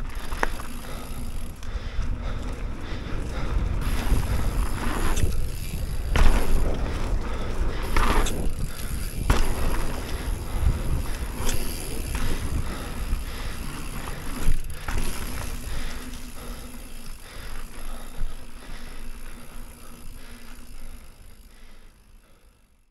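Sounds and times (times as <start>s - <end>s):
bike knocking and clattering: 0.0s - 21.6s
tyres rumbling on dirt: 2.1s - 18.1s.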